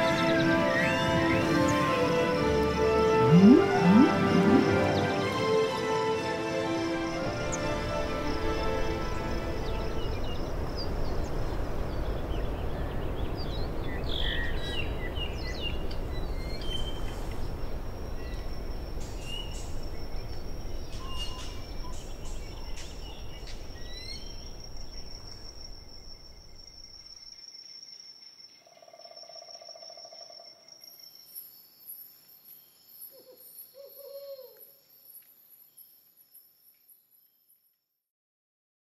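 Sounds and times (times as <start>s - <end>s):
bird calls and chirps: 3.3s - 5.2s, 18.2s - 37.0s
high-pitched insect trill: 17.8s - 37.4s.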